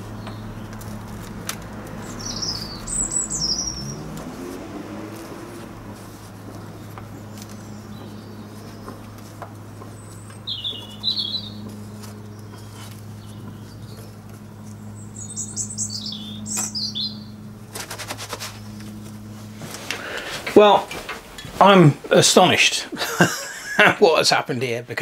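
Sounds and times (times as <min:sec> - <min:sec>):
steady low hum: 0:00.0 - 0:25.0
small bird chirping: 0:01.8 - 0:04.6, 0:05.2 - 0:17.5.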